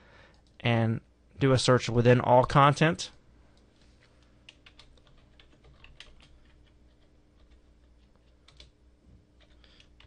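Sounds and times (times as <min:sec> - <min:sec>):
computer keyboard typing: 0:04.5 - 0:08.8, 0:09.4 - 0:10.0.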